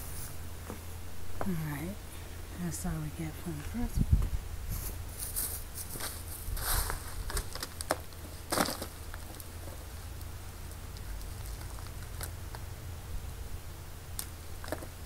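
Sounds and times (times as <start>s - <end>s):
potatoes clicking and rustling: 5.2s - 12.7s, 14.2s - 15.0s.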